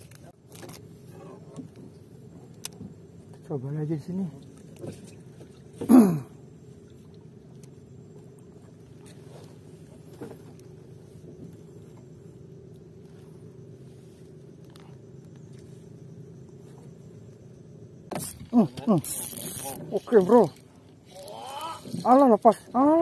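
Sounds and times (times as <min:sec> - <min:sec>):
boat engine droning: 0:00.0 - 0:23.0.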